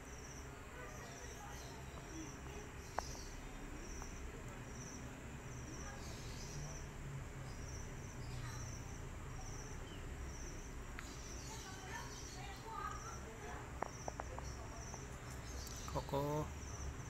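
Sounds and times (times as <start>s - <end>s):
crickets chirping: 0.0s - 17.0s.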